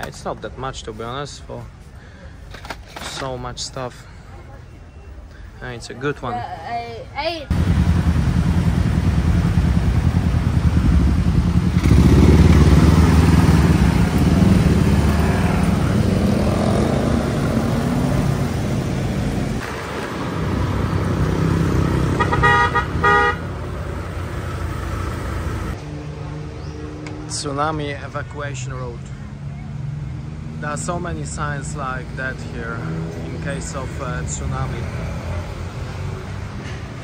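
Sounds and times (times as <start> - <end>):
motor scooter engines: 6.7 - 37.0
vehicle horn short beeps: 22.2 - 23.4.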